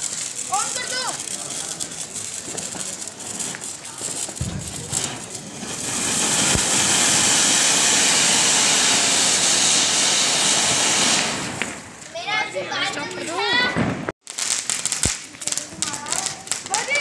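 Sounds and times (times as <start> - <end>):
crackling: 0.0 - 7.7
firework fountain hissing: 0.0 - 12.5, 14.2 - 17.0
low thump: 4.4 - 5.4.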